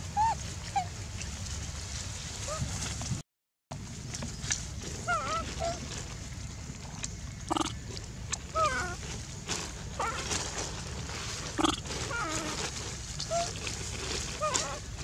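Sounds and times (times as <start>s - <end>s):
low steady rumble: 0.0s - 15.0s
monkeys squeaky calls: 0.2s - 0.9s, 5.0s - 5.8s, 7.5s - 7.8s, 11.6s - 12.6s, 13.3s - 13.6s.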